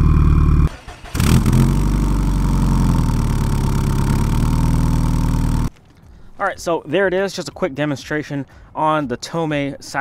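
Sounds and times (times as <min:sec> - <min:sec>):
car engine idling: 0:00.0 - 0:05.7.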